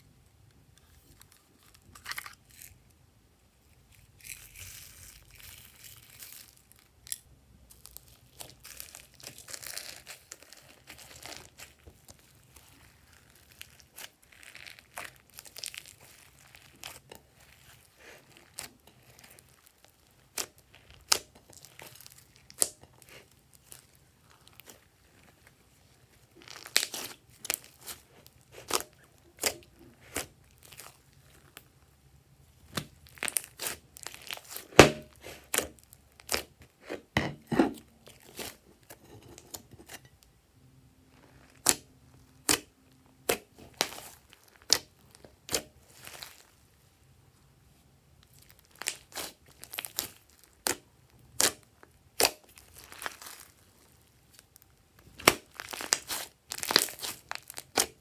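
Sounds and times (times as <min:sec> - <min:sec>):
slime squishing with sticky pops: 0:03.9 - 0:32.0, 0:32.6 - 0:37.2, 0:37.8 - 0:40.0, 0:41.2 - 0:46.6, 0:48.2 - 0:58.0.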